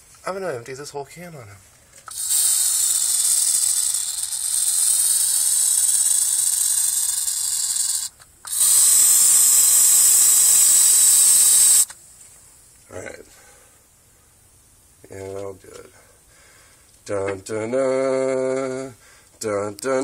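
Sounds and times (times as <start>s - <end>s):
aerosol can spraying: 2.1s - 11.9s.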